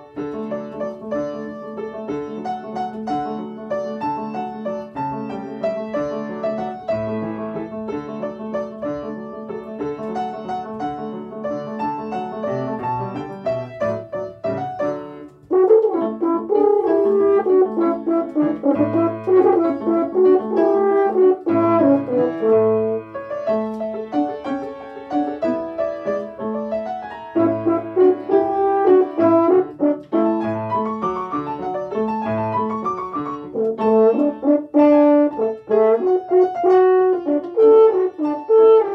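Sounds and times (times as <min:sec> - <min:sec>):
piano playing: 0:00.0 - 0:38.9
french horn melody: 0:15.4 - 0:23.8, 0:27.3 - 0:32.8, 0:33.4 - 0:38.9.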